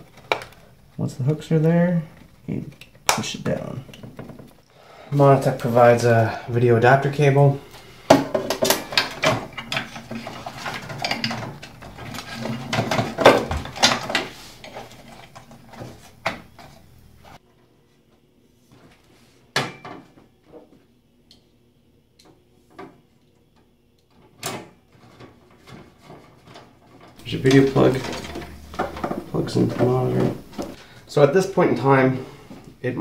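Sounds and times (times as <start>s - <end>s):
wires rustling: 0.0s - 17.4s, 24.0s - 33.0s.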